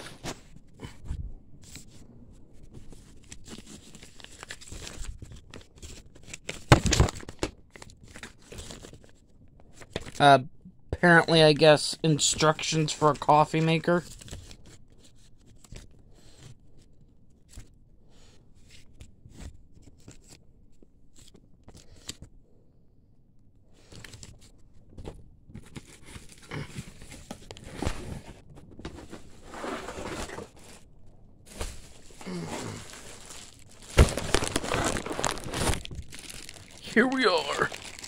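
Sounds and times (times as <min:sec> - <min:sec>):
paper and plastic rustling: 0:23.8 - 0:38.0.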